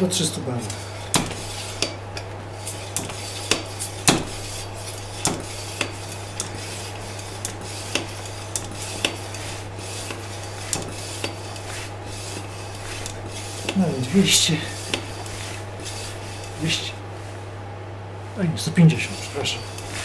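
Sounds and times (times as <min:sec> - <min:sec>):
steady low hum: 0:00.0 - 0:20.0
hand pump metallic clicks and clunks: 0:00.6 - 0:16.6.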